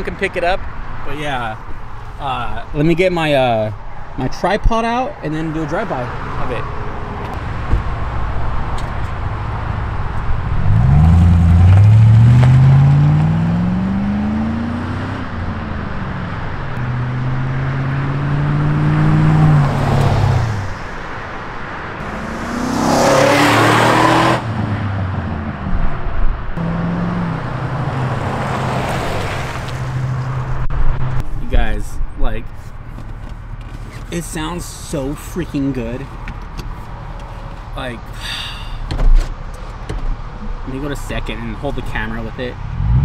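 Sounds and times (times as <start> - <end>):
loud rush of passing truck: 17.0 - 25.1, 27.1 - 31.2
truck exhaust revving: 22.0 - 25.5.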